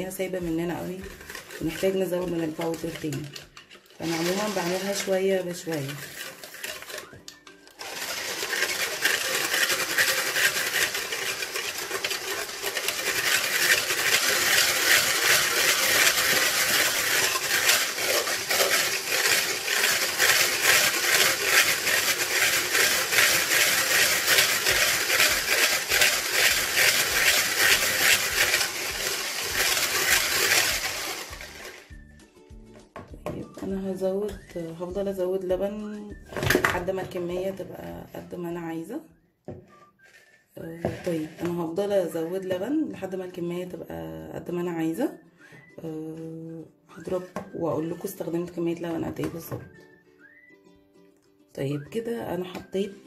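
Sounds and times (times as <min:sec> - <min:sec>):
electric hand mixer whirring: 0:00.0 - 0:32.1.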